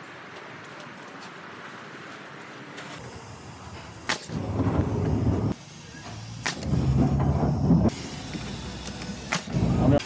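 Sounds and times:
screw gun motor running: 7.9 - 9.5.

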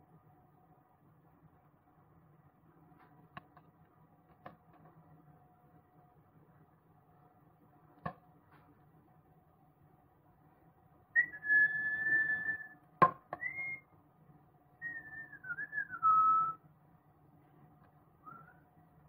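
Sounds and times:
person whistling: 11.2 - 12.8, 13.4 - 13.8, 14.8 - 16.6.

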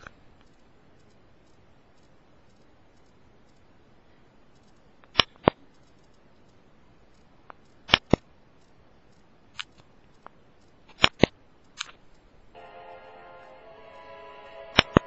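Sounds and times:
sharp short clicks: 0.0 - 3.8, 4.5 - 12.3.

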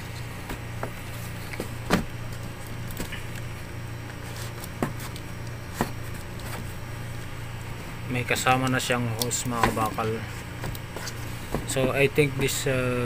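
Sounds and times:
steady low hum: 0.0 - 13.0
knocks on cardboard box: 1.6 - 2.1, 11.5 - 12.0.

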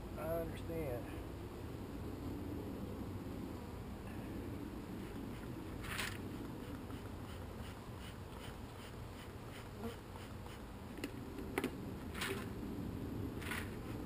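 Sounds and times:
short rustle: 5.0 - 7.0
bees buzzing: 9.0 - 10.4.

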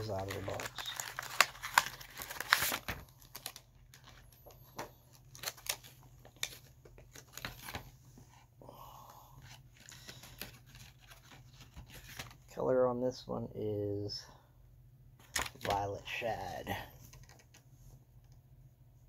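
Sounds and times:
plastic packaging crinkling: 0.0 - 7.9.

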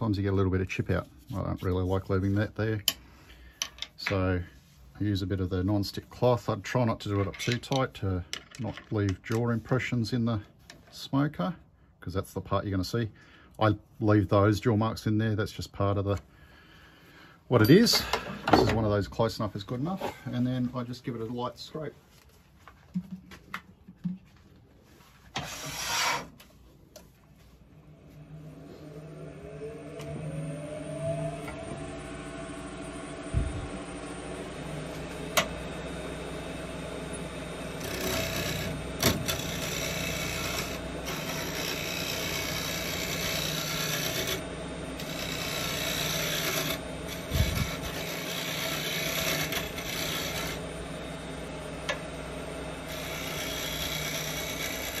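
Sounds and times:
scraper scraping spinning wood: 24.9 - 26.7, 37.7 - 50.8, 52.9 - 55.0
wood lathe humming: 27.7 - 55.0.

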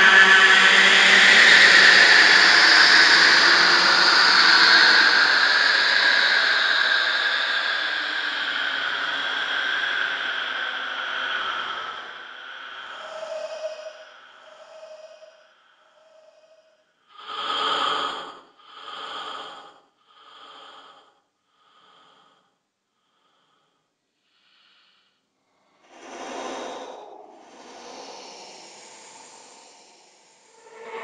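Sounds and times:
raspy breaths: 11.5 - 31.0
breath trailing into hiss: 17.2 - 21.1, 25.8 - 31.0.

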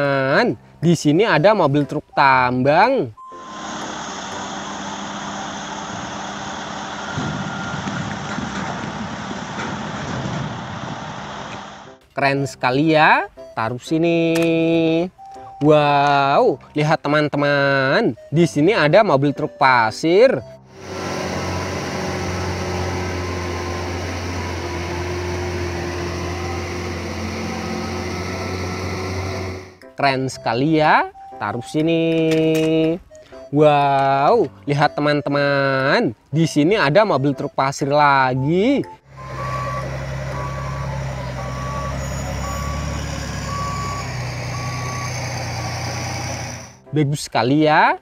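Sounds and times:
dump truck engine running: 3.2 - 12.0, 20.5 - 29.9, 38.4 - 46.9.

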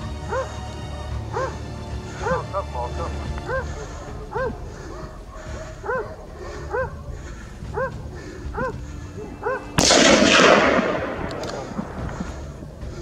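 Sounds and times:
dog barking: 0.2 - 0.6, 1.3 - 9.8
gunshot with long echo: 9.6 - 13.0.

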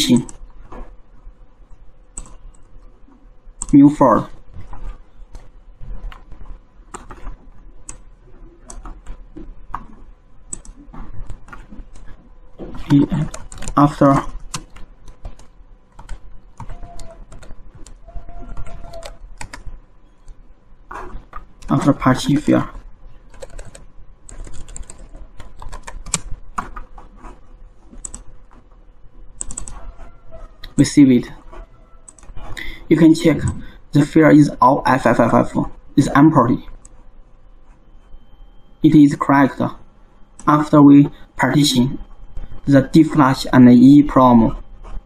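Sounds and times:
steady low hum: 0.0 - 45.0
keyboard typing clicks: 2.1 - 2.8, 4.6 - 12.1, 12.7 - 20.4, 23.3 - 28.6, 29.4 - 30.0, 32.0 - 32.4.

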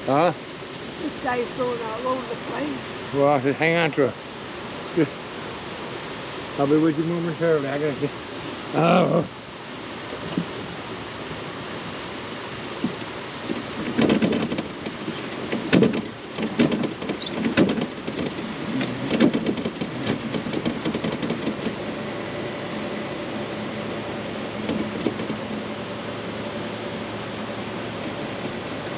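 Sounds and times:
steady low hum: 0.0 - 28.9
gear knocking and clattering: 12.8 - 21.8, 24.6 - 25.5.

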